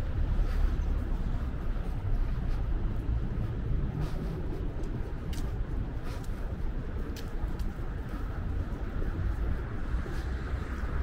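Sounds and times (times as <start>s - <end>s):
low rumble of traffic: 0.0s - 11.0s
light clicks: 4.6s - 8.3s.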